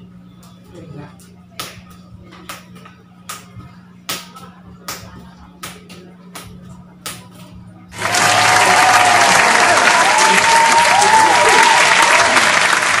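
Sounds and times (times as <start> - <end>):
crowd applause and cheering: 8.0 - 13.0.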